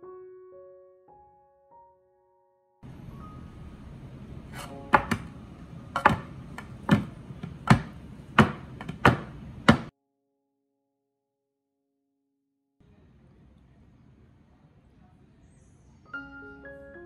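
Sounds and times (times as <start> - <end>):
muffin cups tapping on metal tray: 6.0 - 9.9.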